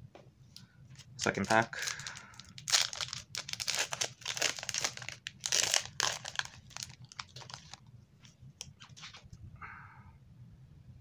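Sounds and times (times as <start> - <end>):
plastic wrapper tearing and crinkling: 1.4 - 7.9.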